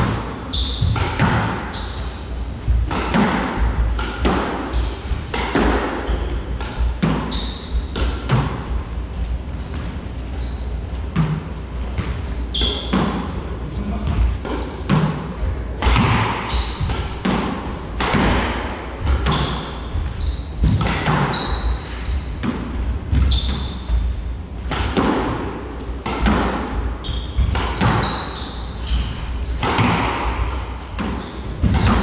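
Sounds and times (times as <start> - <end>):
squash ball hitting racquets and walls: 0.0 - 32.0
shoes squeaking on hardwood floor: 0.5 - 1.0, 3.5 - 5.3, 6.0 - 8.4, 9.0 - 11.1, 13.6 - 20.7, 21.3 - 22.4, 23.1 - 25.4, 26.3 - 30.1, 30.8 - 32.0.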